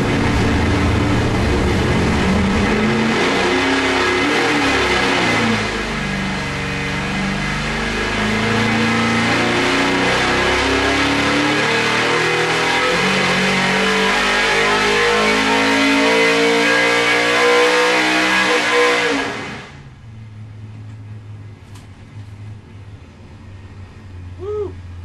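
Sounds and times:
engine idling: 0.0s - 3.3s, 19.7s - 25.0s
engine revving at full throttle: 0.0s - 19.8s.

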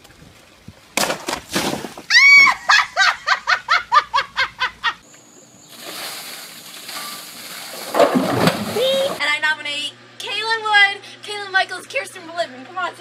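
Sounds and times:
water pouring and splashing: 5.7s - 9.2s.

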